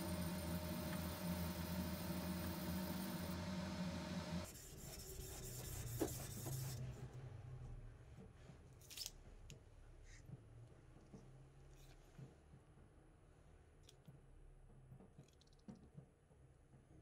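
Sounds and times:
steady hum: 0.0s - 4.5s.

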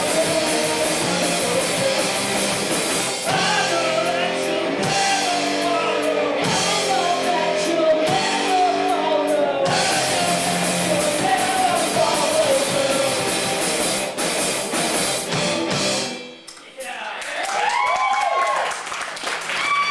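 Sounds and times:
man singing: 0.0s - 14.0s
bass guitar: 0.0s - 16.5s
distorted electric guitars: 0.0s - 16.6s
drum kit: 0.0s - 17.0s.

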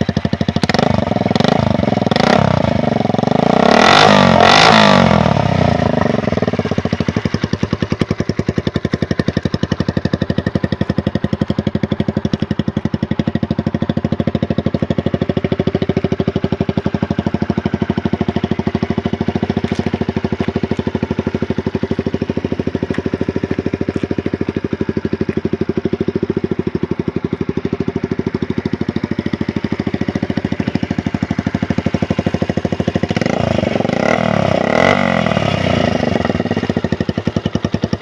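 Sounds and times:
motorcycle engine idling: 0.0s - 38.0s
engine revving: 0.6s - 7.0s, 31.0s - 37.5s.

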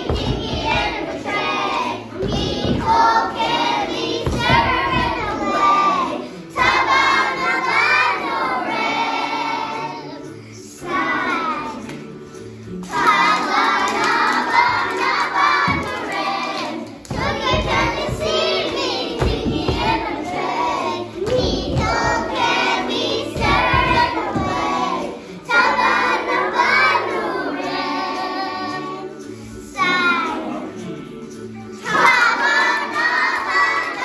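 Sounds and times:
backing track music: 0.0s - 34.0s
children singing together: 0.0s - 34.0s
hand clapping: 11.8s - 20.4s.

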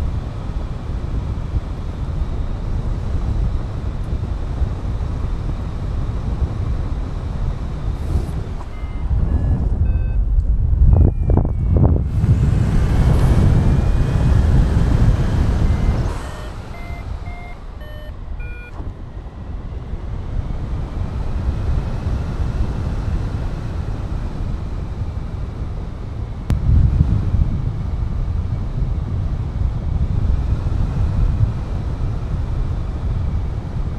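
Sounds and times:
wind rushing over microphone: 0.0s - 33.9s
electronic variometer beeps: 7.9s - 18.9s.

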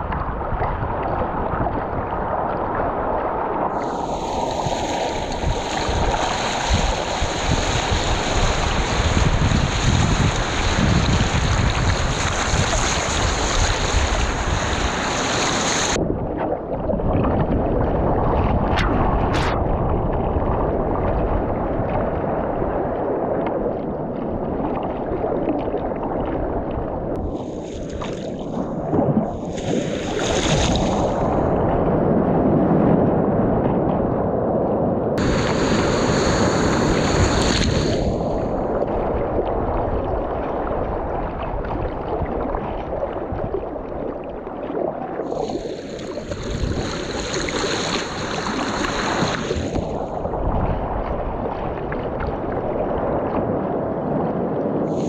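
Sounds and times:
wind buffeting microphone: 0.0s - 55.0s
ocean surf rushing: 3.6s - 16.0s, 27.2s - 32.8s, 35.2s - 39.3s, 45.3s - 50.3s.

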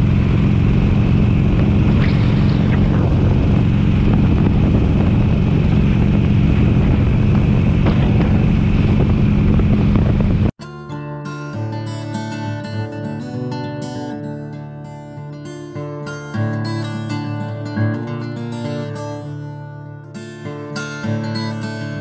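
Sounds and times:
motorcycle engine cruising: 0.0s - 10.5s
wind rushing over microphone: 0.0s - 10.5s.

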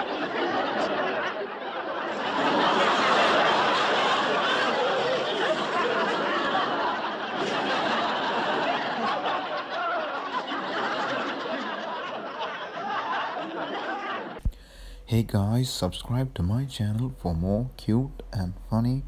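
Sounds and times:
crowd laughing: 0.0s - 19.0s.

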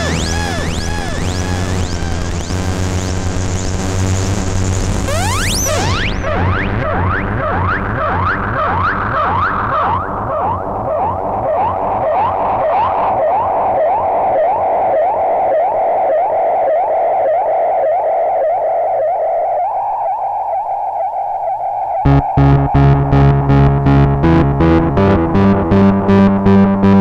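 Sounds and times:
low pulsing synth layer: 0.0s - 12.4s, 22.1s - 27.0s
synthesizer drone with rising sweeps: 0.0s - 15.7s, 18.9s - 27.0s
loud pulsing low beat: 22.1s - 27.0s.

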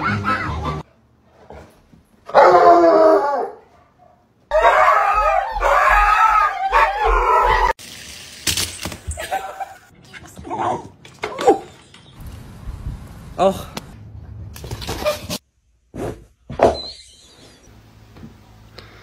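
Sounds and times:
dog howling: 4.5s - 7.8s.

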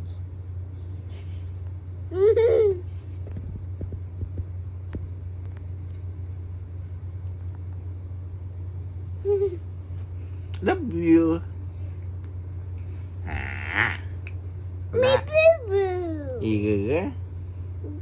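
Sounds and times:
steady low hum: 0.0s - 18.0s
toddler giggling: 2.1s - 2.9s, 9.2s - 9.6s.

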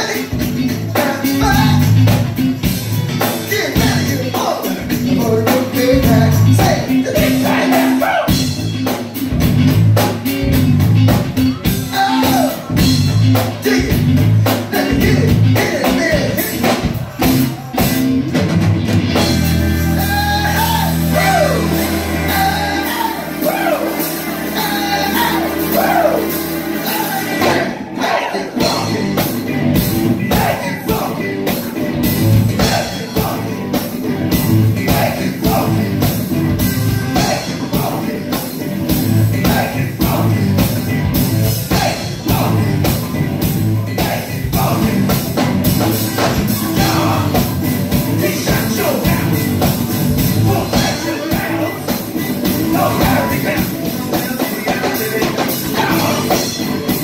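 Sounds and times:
live band playing: 0.0s - 57.0s
person singing: 11.6s - 16.9s, 19.6s - 29.6s, 30.2s - 36.3s, 37.1s - 38.7s, 43.9s - 57.0s.

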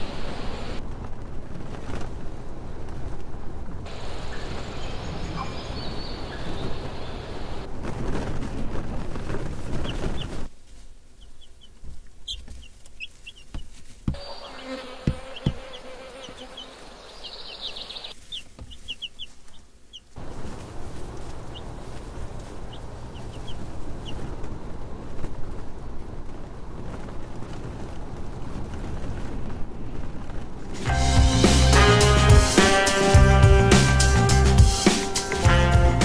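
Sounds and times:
wind rumble on microphone: 0.0s - 10.5s, 20.2s - 30.9s
small birds chirping: 3.9s - 7.7s, 9.7s - 10.5s, 11.1s - 25.9s.

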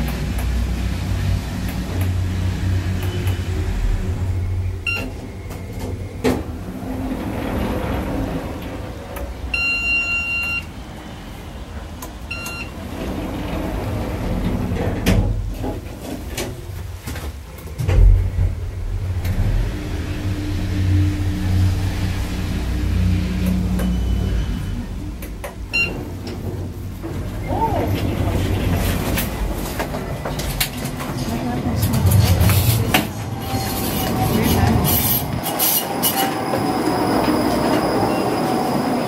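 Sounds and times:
sliding doors opening and closing: 0.0s - 39.0s
elevator signal beeps: 4.8s - 6.2s, 9.5s - 10.8s, 12.3s - 12.8s, 23.4s - 24.9s, 25.7s - 26.1s, 37.4s - 39.0s.

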